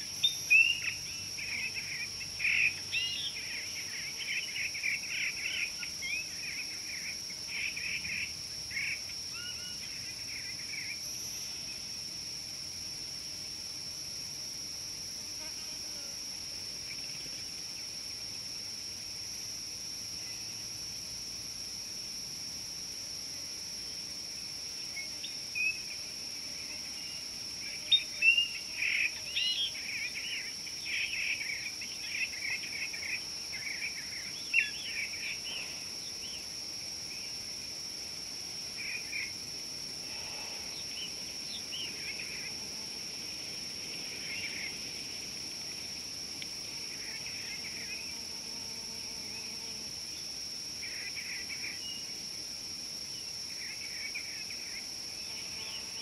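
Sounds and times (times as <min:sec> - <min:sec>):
high-pitched insect drone: 0:38.6 - 0:52.2.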